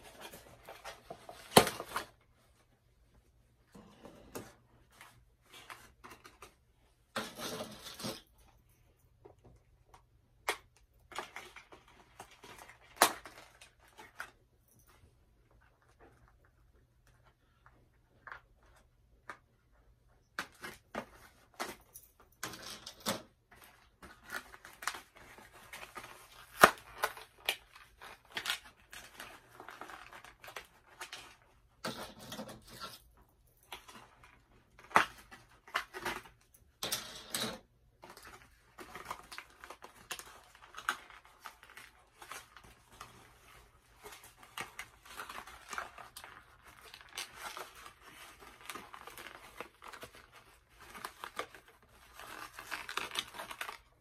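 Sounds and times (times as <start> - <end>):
cardboard packaging rustling: 0.0 - 2.8, 37.6 - 54.0.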